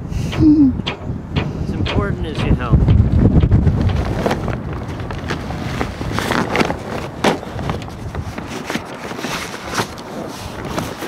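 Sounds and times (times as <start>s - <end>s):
sailcloth rustling and crinkling: 3.6s - 11.0s.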